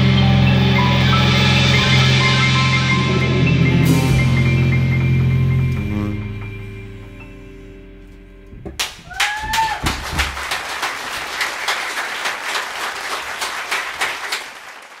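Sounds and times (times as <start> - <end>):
audience applauding: 8.8 - 15.0.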